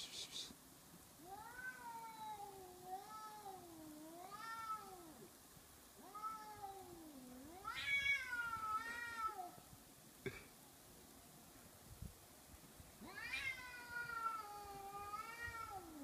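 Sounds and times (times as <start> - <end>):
cats yowling: 1.2 - 5.3, 6.0 - 9.6, 13.0 - 16.0.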